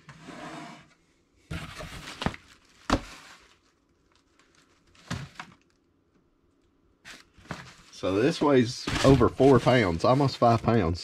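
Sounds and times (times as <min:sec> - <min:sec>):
cardboard box rustling and scraping: 0:01.5 - 0:03.4, 0:07.1 - 0:10.6.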